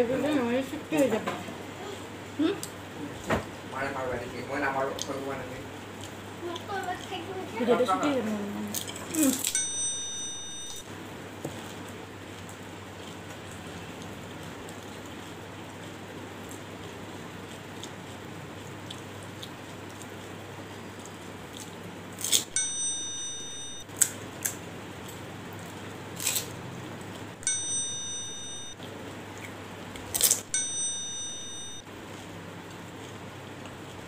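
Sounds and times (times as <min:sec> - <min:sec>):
bell-like chime: 0:09.5 - 0:10.8, 0:22.6 - 0:23.8, 0:27.4 - 0:28.8, 0:30.5 - 0:31.8
steady low hum: 0:22.5 - 0:23.9, 0:27.3 - 0:34.0.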